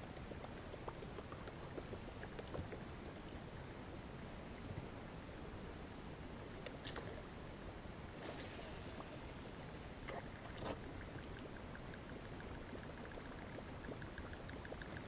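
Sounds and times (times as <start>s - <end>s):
fishing reel spool whirring: 8.2s - 10.0s.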